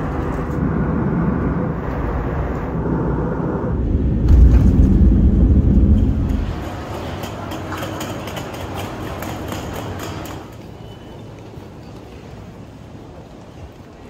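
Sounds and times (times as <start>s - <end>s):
jet engine rumble: 0.0s - 9.5s.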